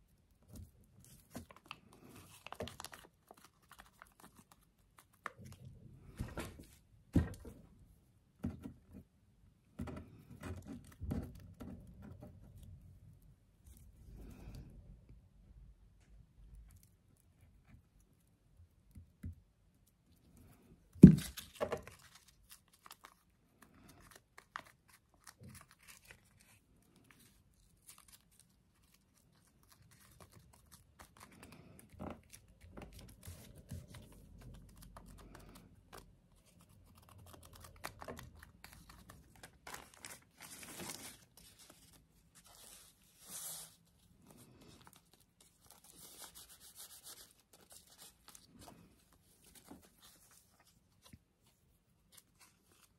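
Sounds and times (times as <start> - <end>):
paper rustling and scraping: 24.0 - 52.9.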